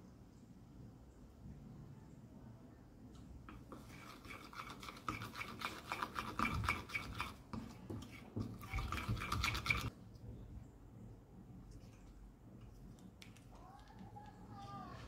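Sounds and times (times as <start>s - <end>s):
spatula scraping glass bowl: 3.6s - 9.9s.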